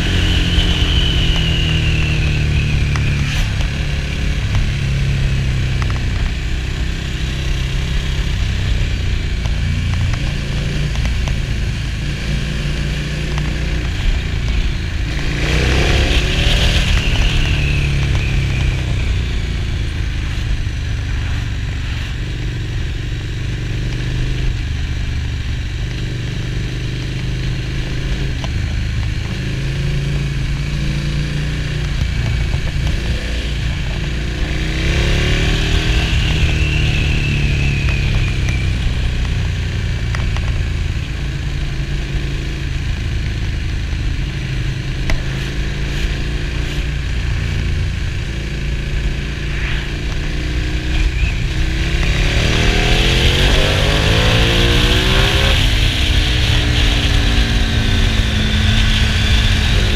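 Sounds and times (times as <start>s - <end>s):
motorcycle engine: 0.0s - 59.9s
wind rush: 6.3s - 22.6s, 46.5s - 59.9s.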